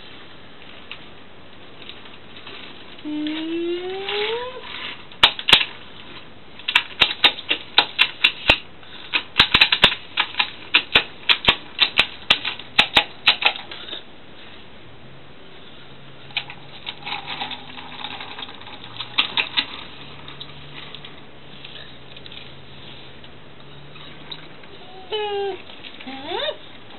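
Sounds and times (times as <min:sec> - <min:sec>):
toy train cars clicking: 0:16.3 - 0:21.0.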